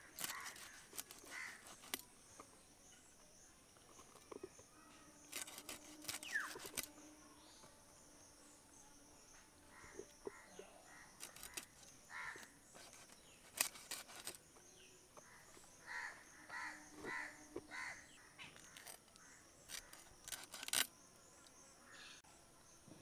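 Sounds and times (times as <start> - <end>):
high insect buzz: 0.0 - 23.0
crow cawing: 1.3 - 1.6, 12.1 - 12.5, 15.8 - 18.1.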